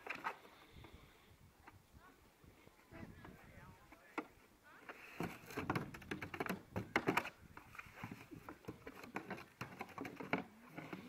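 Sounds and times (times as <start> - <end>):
plastic barrel crackling: 3.9 - 11.0.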